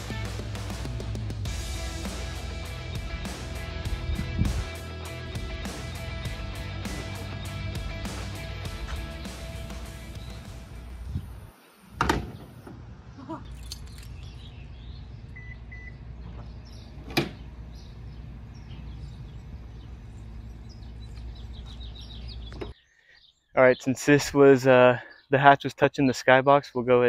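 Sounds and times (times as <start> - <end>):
low wind rumble: 1.4 - 13.2.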